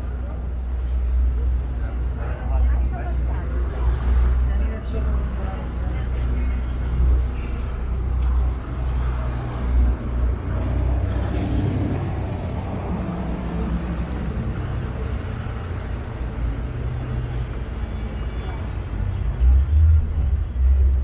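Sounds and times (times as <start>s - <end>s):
boat engine rumble: 0.0s - 21.0s.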